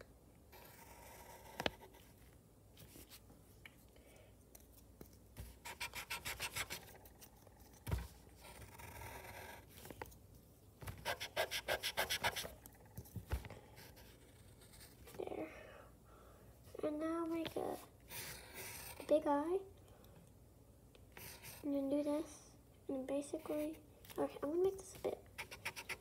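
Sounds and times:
eraser rubbing on paper: 0:05.4 - 0:07.0, 0:10.9 - 0:12.6, 0:25.4 - 0:26.0.

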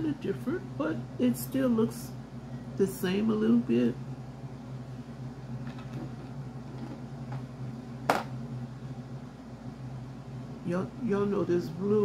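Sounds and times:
air conditioner humming: 0:00.0 - 0:12.0.

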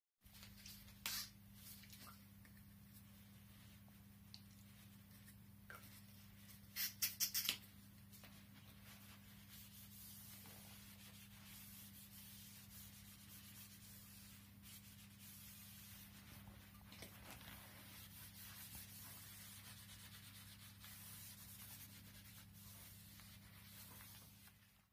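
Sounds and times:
faint electrical hum: 0:00.2 - 0:24.9.

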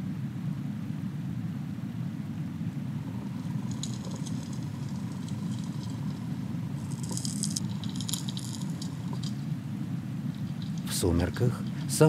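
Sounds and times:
pebbles clicking and rattling: 0:03.1 - 0:09.6, 0:10.3 - 0:12.0.

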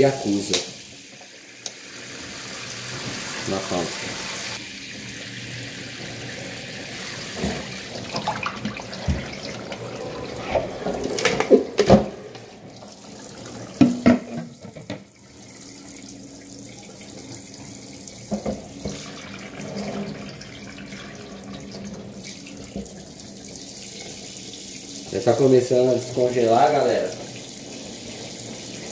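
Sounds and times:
glass bowl knocking on sink: 0:13.8 - 0:14.5.

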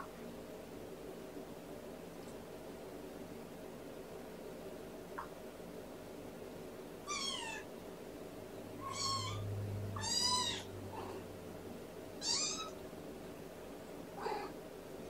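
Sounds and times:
kitten meowing: 0:07.1 - 0:07.6, 0:08.8 - 0:09.4, 0:10.0 - 0:10.7, 0:12.2 - 0:12.8.

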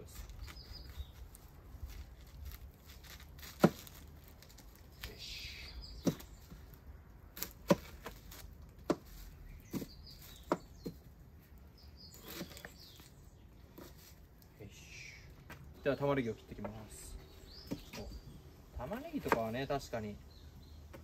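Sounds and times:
onion skin rustling: 0:00.0 - 0:05.3, 0:05.9 - 0:14.6.

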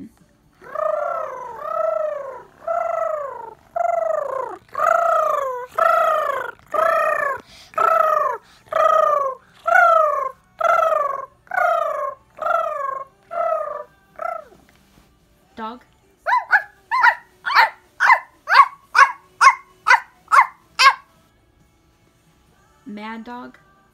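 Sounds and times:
girl imitating pigeon coo: 0:00.6 - 0:14.6, 0:16.3 - 0:21.0.

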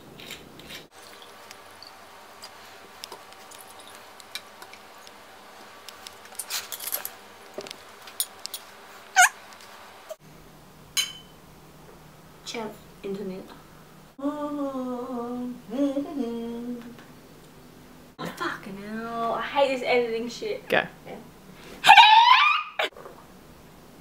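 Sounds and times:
sharp squeak: 0:09.2 - 0:09.4.

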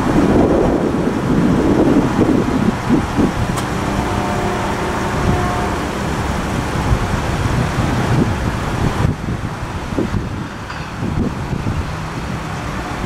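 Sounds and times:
vehicle traffic rumble: 0:00.0 - 0:13.0
faint steady tones: 0:01.7 - 0:09.6, 0:10.6 - 0:13.0.

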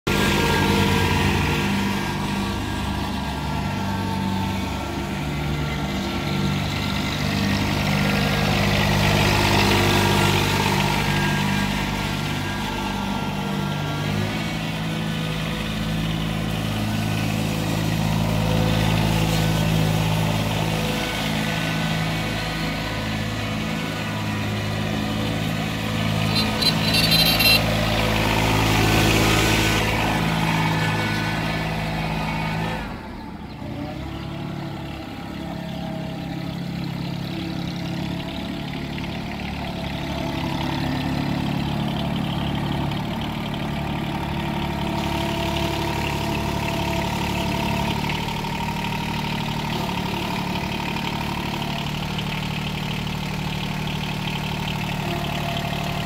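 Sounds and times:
tractor diesel engine running: 0:00.0 - 0:56.0
high-pitched chirps: 0:26.3 - 0:27.6.

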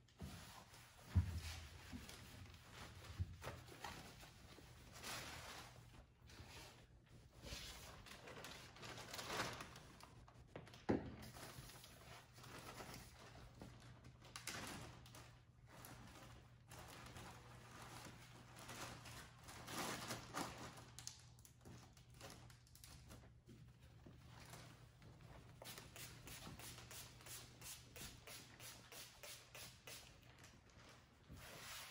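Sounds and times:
faint low room hum: 0:00.0 - 0:31.9
plastic bags rustling: 0:07.7 - 0:10.3, 0:11.3 - 0:23.2.

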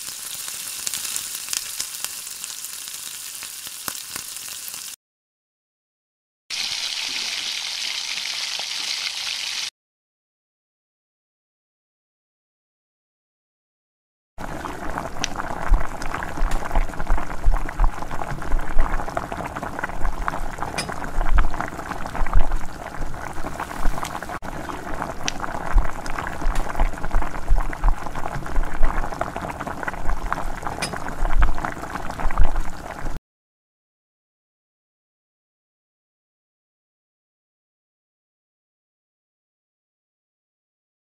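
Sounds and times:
thick curry boiling and bubbling: 0:14.4 - 0:33.2.

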